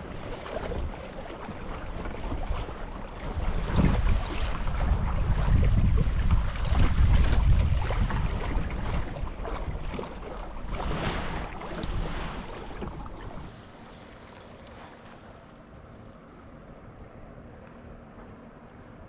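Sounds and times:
wind buffeting the microphone: 0.0 - 13.5.

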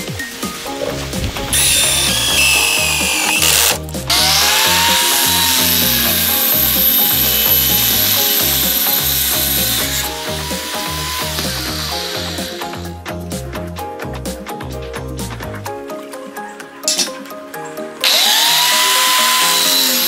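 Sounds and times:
background music with beat: 0.0 - 20.0
angle grinder cutting steel: 1.5 - 12.9, 18.0 - 20.0
power drill boring into steel: 1.6 - 12.8, 18.0 - 20.0.

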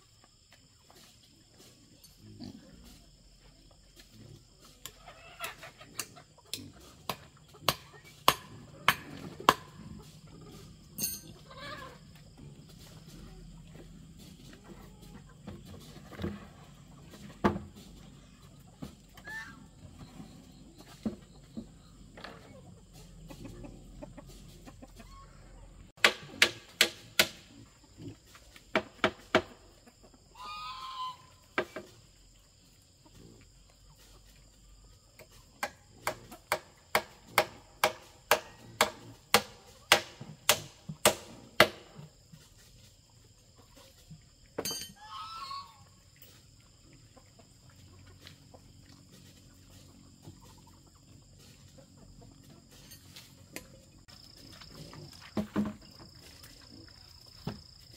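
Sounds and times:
chicken calling: 5.0 - 6.5, 11.4 - 12.1, 19.1 - 19.9, 22.5 - 25.8, 30.1 - 31.4, 45.0 - 46.0.

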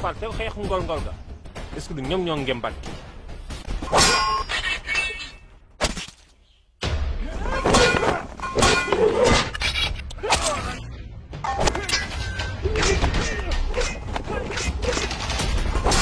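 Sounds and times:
people shouting: 7.2 - 9.4, 12.6 - 15.2.

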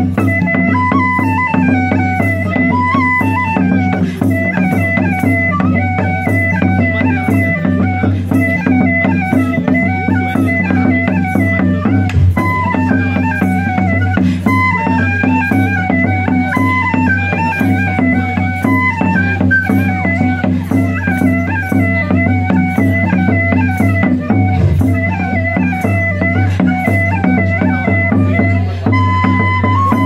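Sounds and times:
light percussion beat: 0.0 - 30.0
quick folk dance melody: 0.0 - 30.0.

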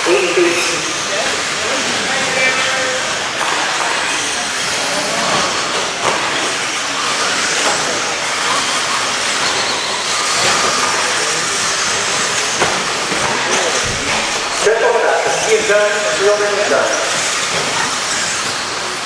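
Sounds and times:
rc trucks motors and tyres hissing: 2.8 - 14.6, 16.8 - 19.0.

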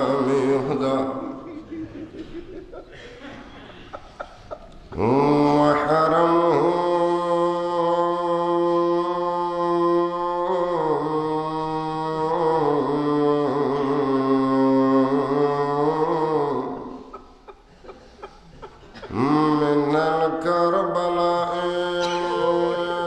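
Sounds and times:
man chanting: 0.0 - 2.1, 4.9 - 17.1, 19.1 - 23.0.

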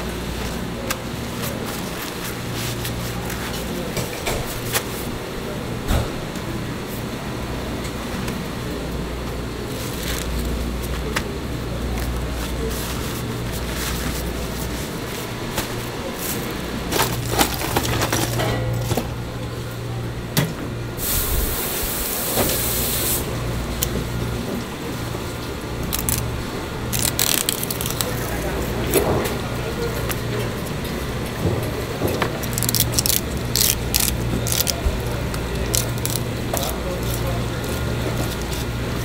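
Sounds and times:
steady low hum: 0.0 - 39.0
paper towels handled: 0.3 - 5.1, 9.7 - 18.4, 25.8 - 29.0.

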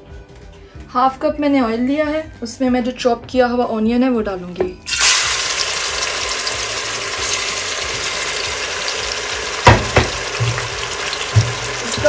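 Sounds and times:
onion sizzling in hot oil: 4.9 - 12.0
sharp knocks: 9.6 - 11.8.

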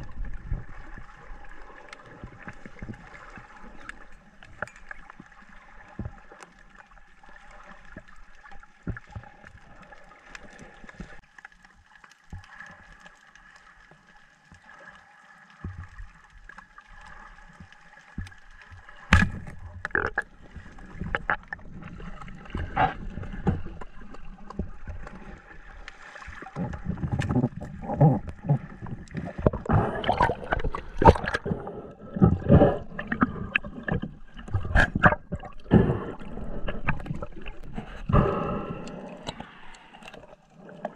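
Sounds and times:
low rushes of water: 0.0 - 40.9
faint underwater hum: 16.5 - 40.9.

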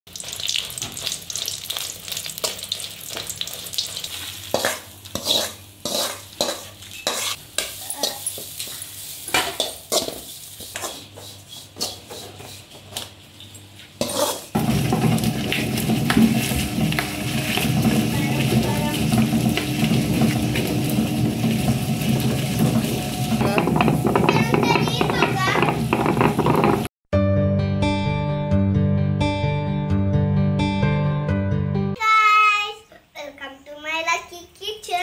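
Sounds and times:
chillies crackling in pan: 0.1 - 11.0, 14.0 - 26.9.

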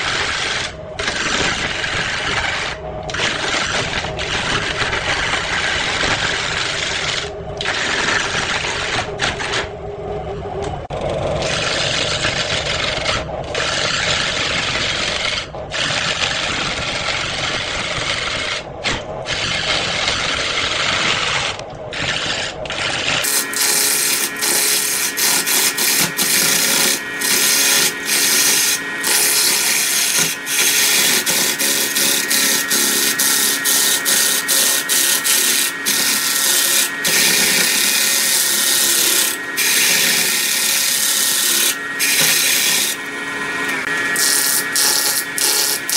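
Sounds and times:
faint steady whine: 4.2 - 12.4
lathe gouge scraping wood: 11.3 - 45.9.

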